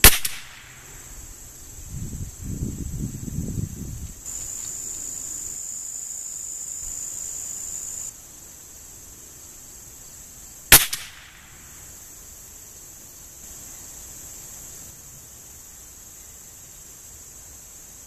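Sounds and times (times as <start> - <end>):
rifle shot: 0.0 - 0.8, 10.7 - 11.5
insects chirring: 0.0 - 18.0.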